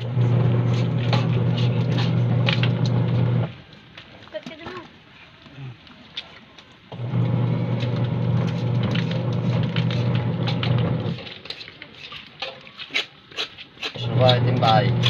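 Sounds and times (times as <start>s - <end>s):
low motor-like hum: 0.0s - 3.6s, 7.0s - 11.2s, 14.0s - 15.0s.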